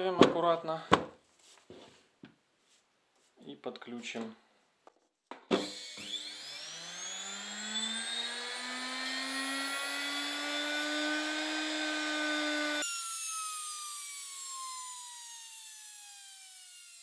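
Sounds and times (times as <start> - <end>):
motor whine: 5.6 - 17.0.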